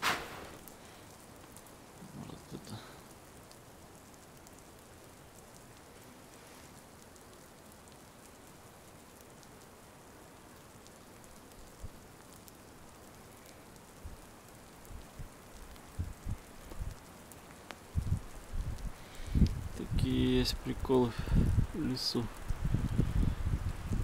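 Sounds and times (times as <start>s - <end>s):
light rain patter: 0.0s - 24.0s.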